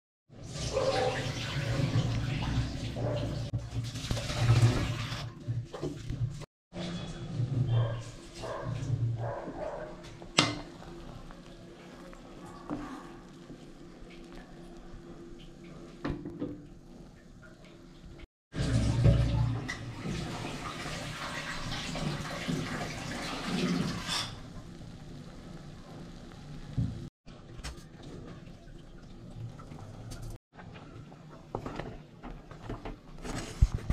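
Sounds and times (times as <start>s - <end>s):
water boiling and bubbling: 0.3s - 6.5s, 10.0s - 27.1s, 28.0s - 30.4s.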